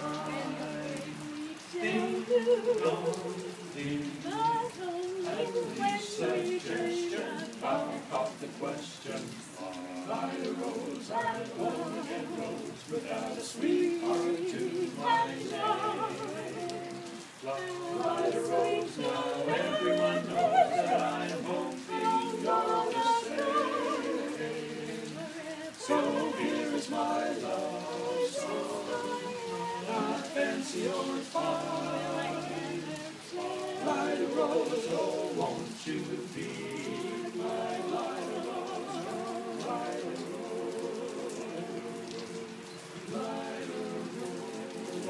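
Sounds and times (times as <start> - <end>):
men singing a cappella harmony: 0.0 - 45.0
rain pattering on tent canopy: 0.0 - 45.0.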